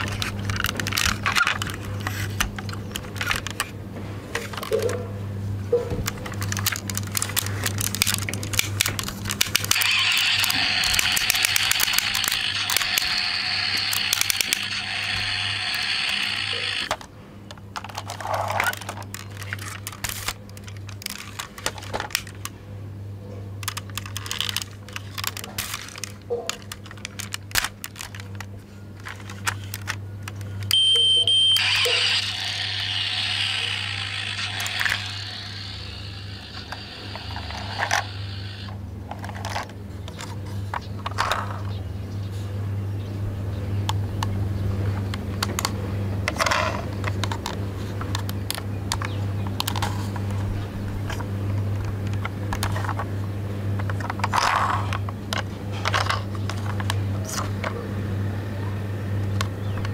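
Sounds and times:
toy clicks and rattles: 0:00.0 - 0:03.7, 0:06.0 - 0:22.6, 0:23.6 - 0:41.7, 0:45.0 - 0:50.4, 0:53.8 - 0:57.7.

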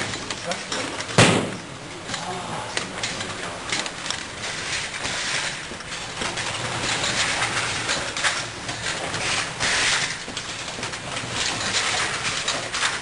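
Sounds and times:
machine rattle: 0:00.0 - 0:13.0.

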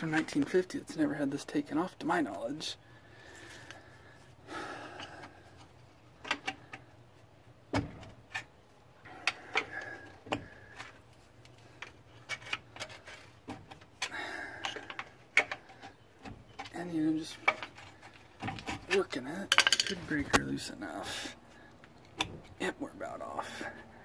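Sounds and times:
metal clunks and rattles: 0:07.7 - 0:08.6.

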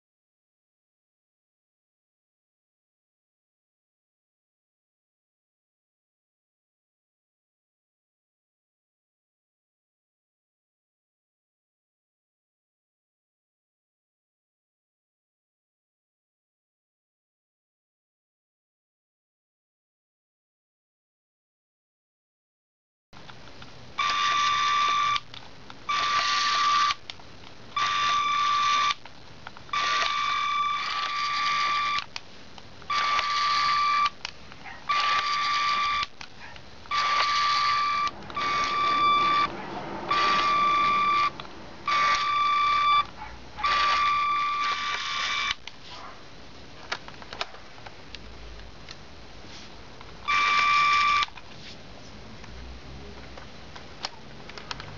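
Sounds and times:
faint steady hiss: 0:32.0 - 0:32.9
electronic beeping: 0:36.9 - 0:39.5, 0:40.1 - 0:45.6.

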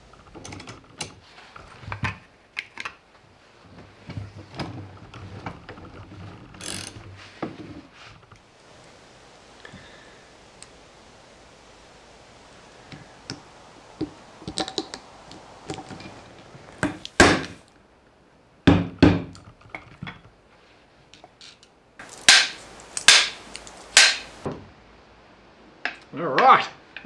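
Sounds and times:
hammer striking metal: 0:22.1 - 0:24.4.

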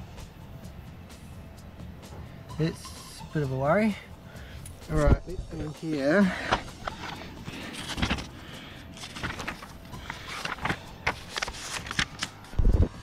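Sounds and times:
pages rustling and flicking: 0:06.3 - 0:13.0.

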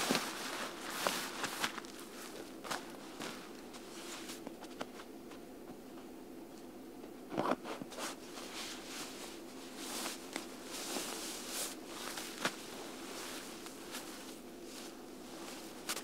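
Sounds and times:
nylon gear rustling: 0:00.0 - 0:04.4, 0:08.4 - 0:16.0.

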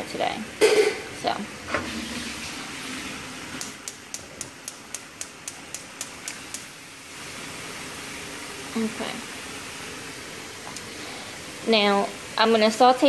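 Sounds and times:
potatoes deep-frying in oil: 0:00.0 - 0:13.0
gas stove igniter clicking: 0:03.6 - 0:06.7.

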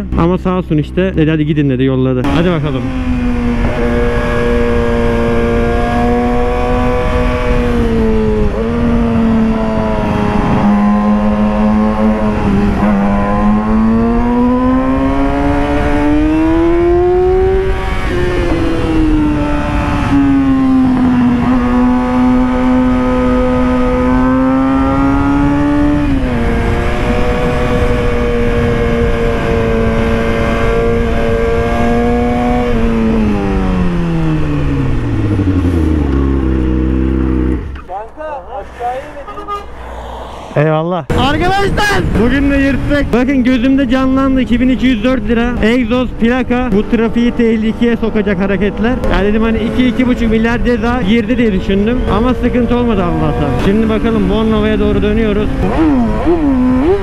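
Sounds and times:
motorcycle engine revving high: 0:02.2 - 0:57.0
wind rush on microphone: 0:02.4 - 0:46.1.

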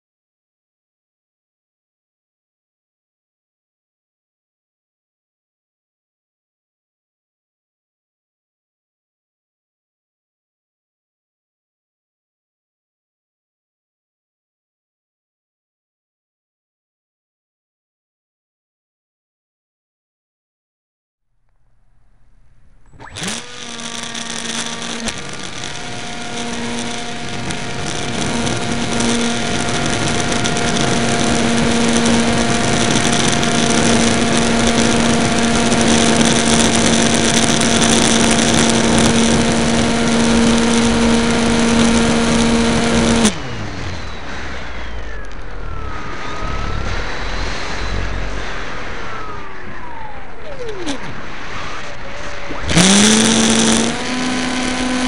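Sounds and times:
wind noise: 0:21.8 - 0:55.0
electric motor and propeller: 0:22.4 - 0:55.0.

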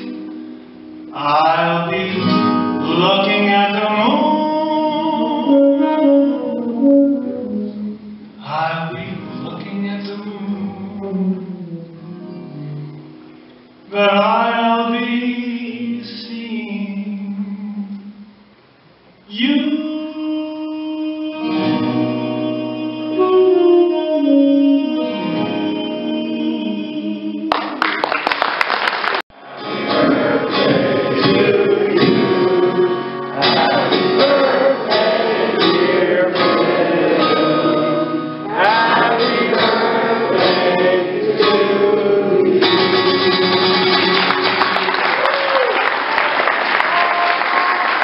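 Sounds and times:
acoustic guitar strumming chords: 0:00.0 - 0:16.0, 0:20.8 - 0:27.8, 0:29.4 - 0:45.0
audience applause: 0:27.5 - 0:29.3, 0:44.0 - 0:48.0
men singing: 0:29.4 - 0:43.6.

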